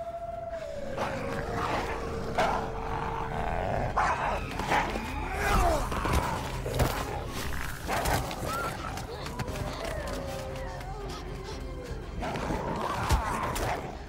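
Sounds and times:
wolves snarling and growling: 0.0s - 14.0s.

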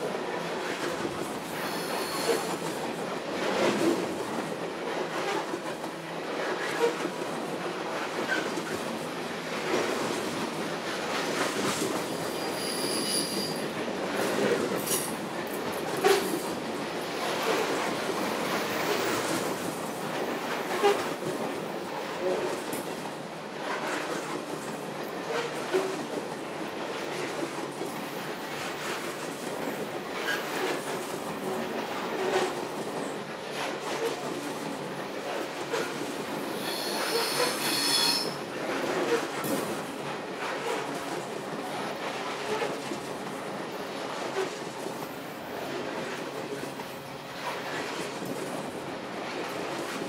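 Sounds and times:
train cars rolling on rails: 0.2s - 50.0s
wheel squeal: 1.7s - 2.5s, 12.3s - 13.6s, 36.6s - 38.4s.

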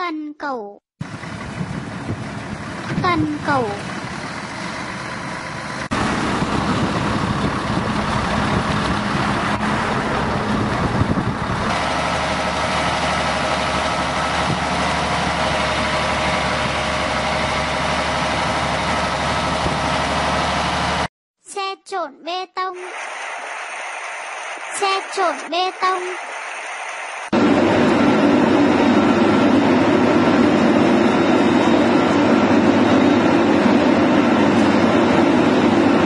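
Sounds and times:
excavator diesel engines droning: 1.0s - 21.1s, 22.8s - 36.0s
higher engine note: 1.0s - 21.1s.

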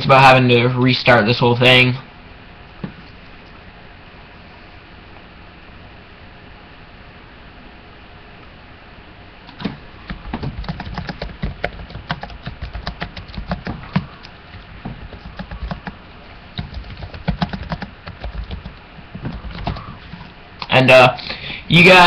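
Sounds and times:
keyboard typing: 10.1s - 16.0s, 16.6s - 20.0s.

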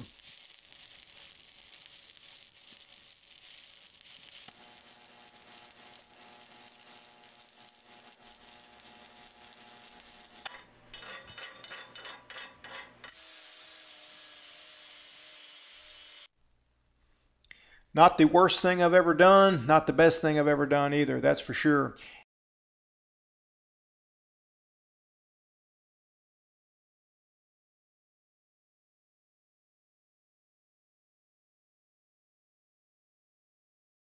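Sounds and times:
welding arc crackling hiss: 0.0s - 10.6s, 13.1s - 16.3s
scraping and knocking: 10.4s - 13.2s.

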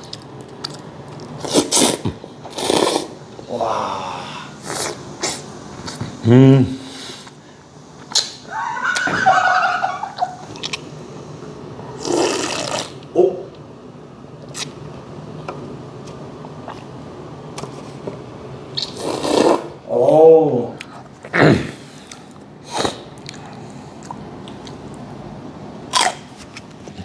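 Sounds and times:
slurping noodles and broth: 1.4s - 3.2s, 4.6s - 6.1s, 12.0s - 13.0s, 18.8s - 19.8s, 21.9s - 23.8s.

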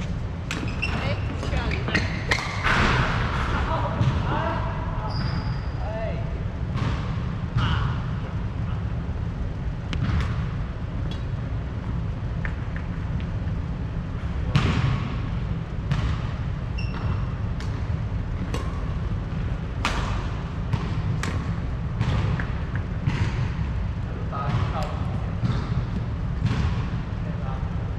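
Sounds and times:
shoe squeak on court floor: 0.6s - 2.6s, 5.0s - 5.8s, 16.8s - 17.3s.

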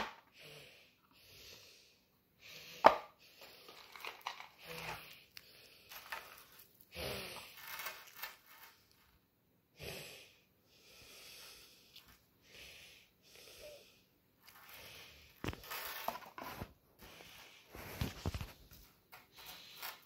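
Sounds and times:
soft breathing: 0.3s - 9.0s, 9.8s - 20.0s
chain necklace handling: 3.6s - 5.0s, 5.9s - 6.8s, 7.6s - 9.0s.

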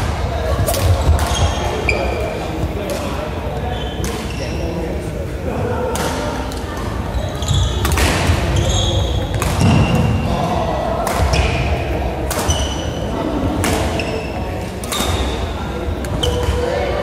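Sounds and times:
shoes squeaking on wooden court: 0.6s - 2.7s, 3.6s - 4.8s, 7.0s - 10.3s, 13.9s - 15.4s, 16.1s - 16.7s
racket hitting shuttlecock: 7.8s - 10.2s, 12.2s - 12.9s, 13.6s - 15.4s.

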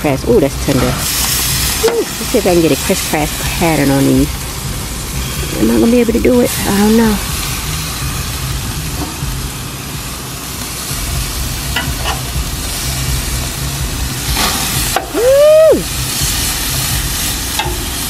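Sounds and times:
low steady hum: 0.0s - 18.0s
steaks sizzling on grill: 0.0s - 18.0s
metal tongs clicking: 17.6s - 17.8s.

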